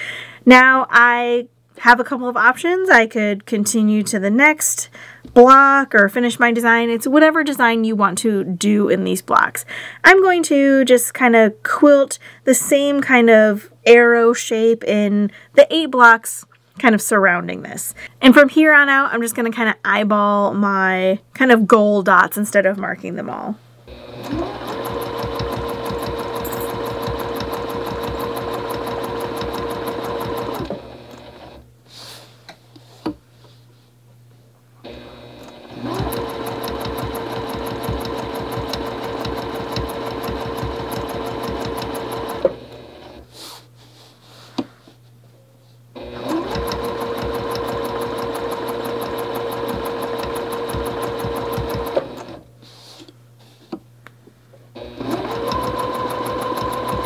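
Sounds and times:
sewing machine stitching: 0:23.9 - 0:31.6, 0:34.9 - 0:43.2, 0:46.0 - 0:52.4, 0:54.8 - 0:57.0.

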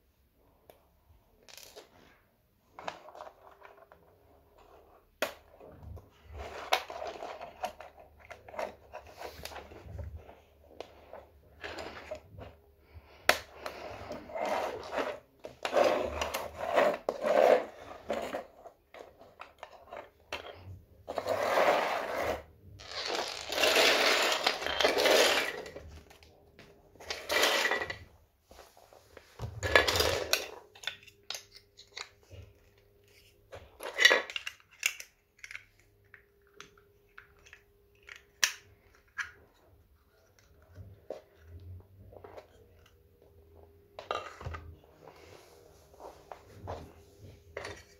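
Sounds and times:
plastic scraping on floor: 0:13.6 - 0:26.3, 0:27.0 - 0:30.6.

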